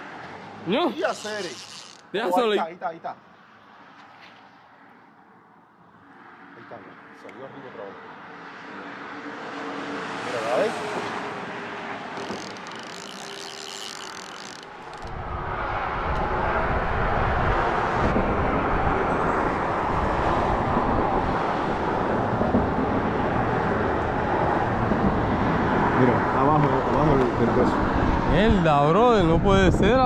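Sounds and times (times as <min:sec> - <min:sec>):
highway traffic: 0:00.0 - 0:29.2
wind on microphone: 0:14.9 - 0:25.5, 0:27.8 - 0:30.0.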